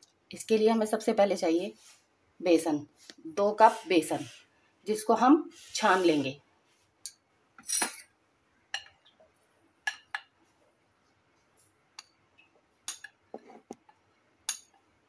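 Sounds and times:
metal spoon clinking on glass bowl: 14.5s - 14.8s.

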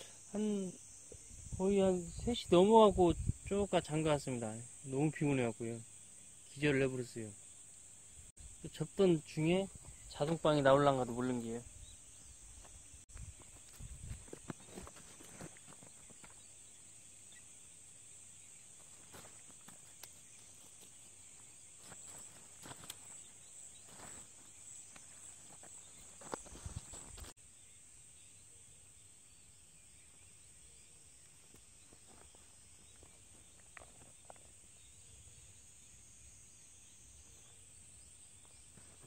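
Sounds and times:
insects chirping: 0.0s - 39.0s
tent fabric and poles rustling: 12.5s - 16.6s, 18.7s - 27.4s.

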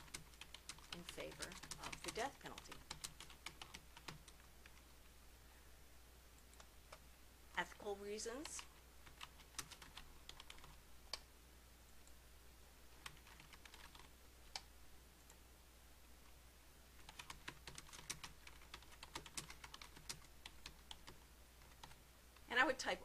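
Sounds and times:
keyboard typing: 0.0s - 4.9s, 8.3s - 11.3s, 13.0s - 15.4s, 17.0s - 22.0s
low steady hum: 0.0s - 23.0s.

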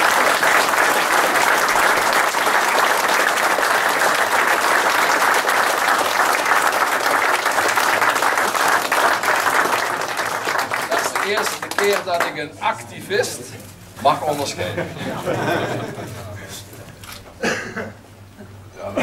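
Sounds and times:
audience applauding: 0.0s - 12.5s.

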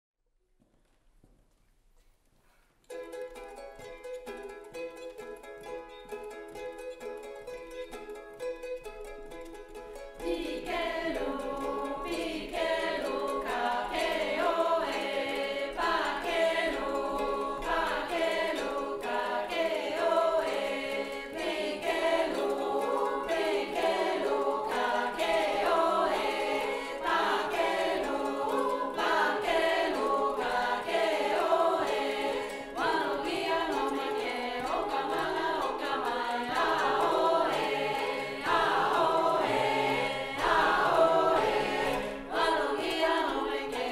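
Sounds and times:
mixed-voice choir singing: 10.2s - 43.9s.

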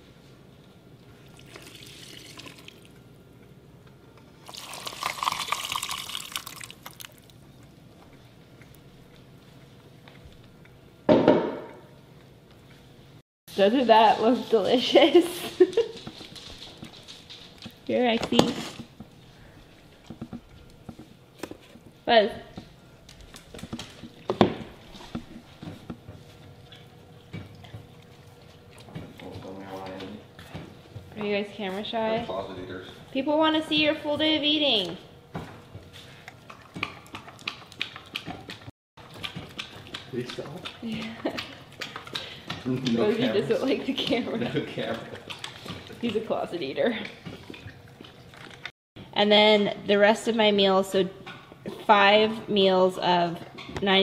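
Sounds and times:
liquid pouring into metal bowl: 1.2s - 3.0s, 4.4s - 7.4s.

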